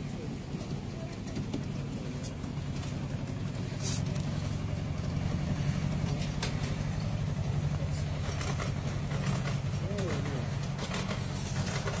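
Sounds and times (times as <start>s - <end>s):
small diesel engine droning: 0.0s - 12.0s.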